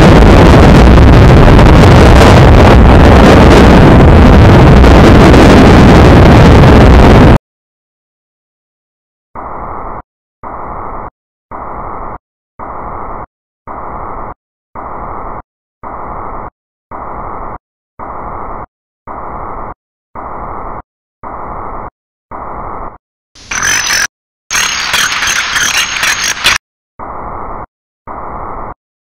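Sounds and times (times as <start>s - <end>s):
pulsed static bursts: 23.4s - 26.6s.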